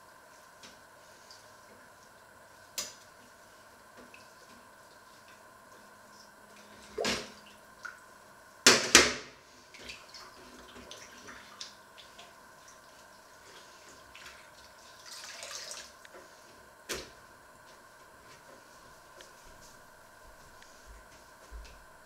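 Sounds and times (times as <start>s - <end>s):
water in sink: 9.6s - 16.2s.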